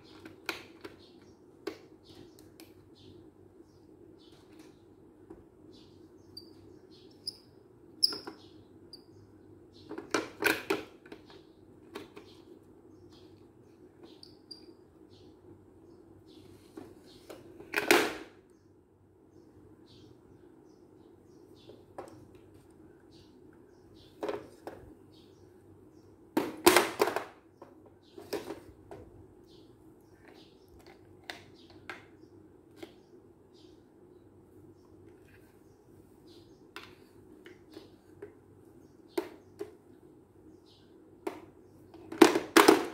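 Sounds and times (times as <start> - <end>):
toy car clattering on tile floor: 26.6 - 27.4, 42.0 - 42.9.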